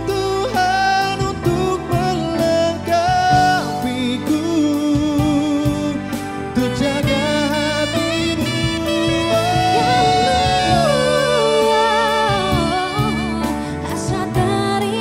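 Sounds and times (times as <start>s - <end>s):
song with wavering held notes: 6.6s - 14.3s.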